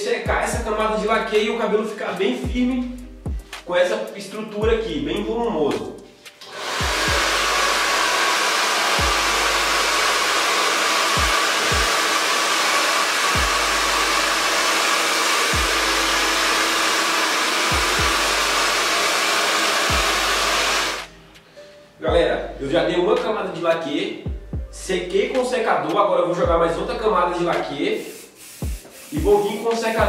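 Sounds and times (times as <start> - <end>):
hair dryer blowing: 6.4 - 21.1, 27.9 - 30.0.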